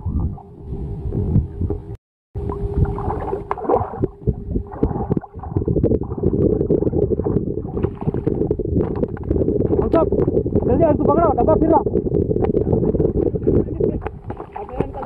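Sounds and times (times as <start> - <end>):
rough rumbling noise: 0.0 - 15.0
fish thrashing and splashing in water: 2.8 - 10.3, 14.1 - 15.0.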